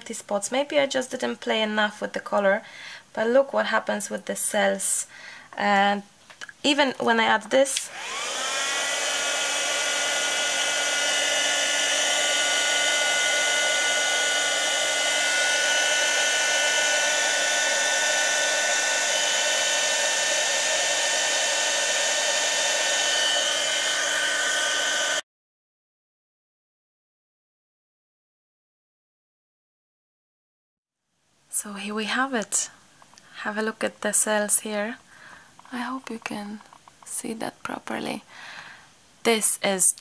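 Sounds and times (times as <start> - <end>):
heat gun fan whining: 7.7 - 25.2.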